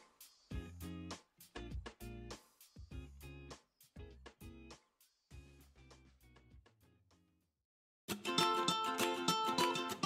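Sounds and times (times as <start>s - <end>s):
plucked string music: 8.1s - 10.0s.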